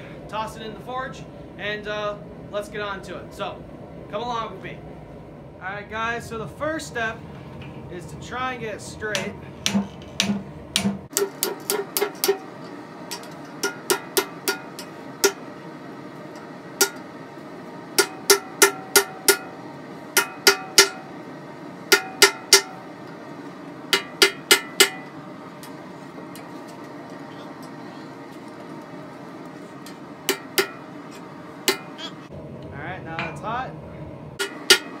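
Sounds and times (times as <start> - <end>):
hammer striking steel on anvil: 9.1 - 12.5, 13.1 - 15.4, 16.8 - 17.1, 18.0 - 21.1, 21.9 - 22.9, 23.9 - 25.8, 29.8 - 32.0, 34.4 - 35.0.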